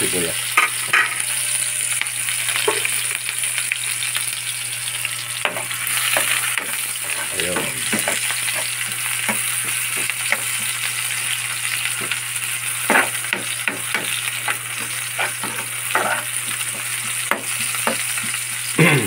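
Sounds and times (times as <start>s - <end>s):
onions sizzling in hot oil: 0.0s - 19.0s
metal spoon scraping a pan: 5.4s - 10.6s, 12.9s - 18.0s.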